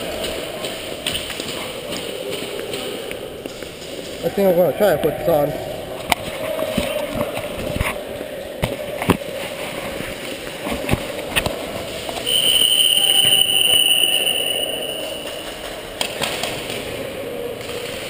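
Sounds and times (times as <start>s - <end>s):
high-pitched tone: 12.3s - 15.6s.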